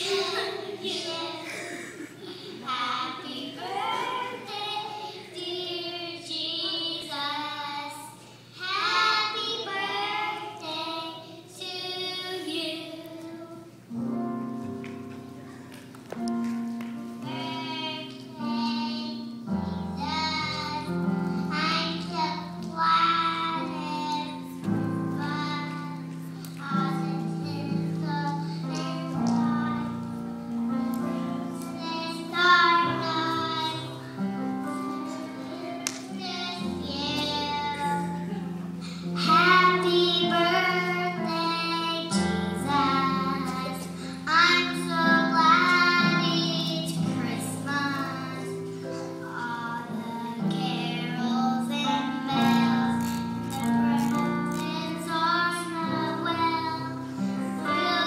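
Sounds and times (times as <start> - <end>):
children singing: 0.0 - 8.0, 8.6 - 13.7, 39.2 - 58.0.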